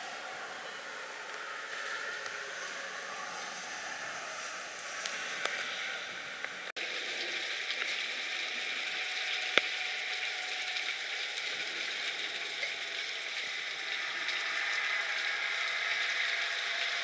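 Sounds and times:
rain falling steadily: 0.0s - 17.0s
raindrops ticking: 6.8s - 17.0s.

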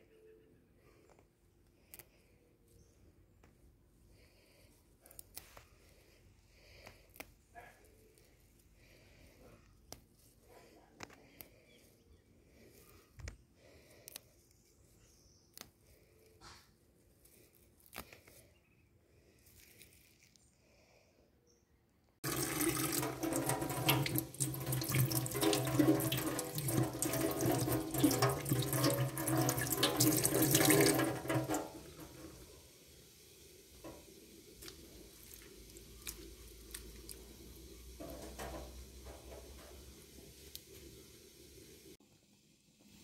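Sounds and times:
tap water splashing on leaves: 22.2s - 32.1s, 34.6s - 37.4s.

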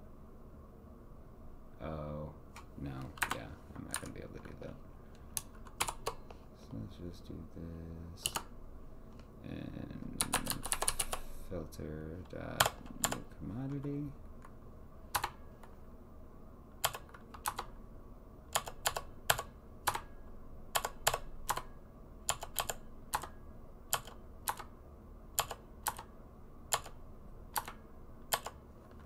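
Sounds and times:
computer keyboard keystrokes: 3.2s - 4.2s, 5.4s - 6.2s, 8.2s - 8.5s, 10.2s - 11.2s, 12.6s - 13.9s, 15.2s - 15.4s, 16.8s - 17.7s, 18.5s - 20.1s, 20.7s - 21.7s, 22.3s - 24.7s, 25.4s - 26.1s, 26.7s - 29.0s.

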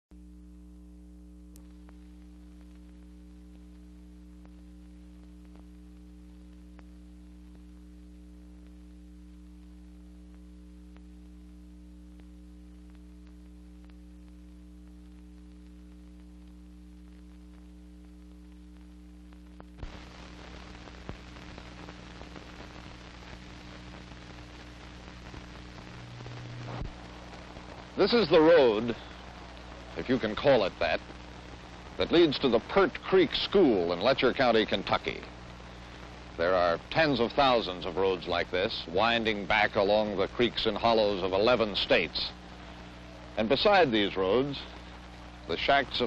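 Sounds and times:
low hum with static: 0.0s - 46.0s
hiss with crackles: 1.5s - 46.0s.

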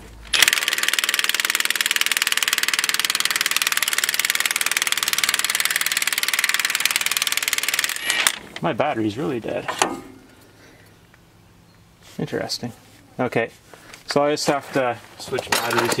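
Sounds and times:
impact wrench rattling: 0.3s - 8.4s.

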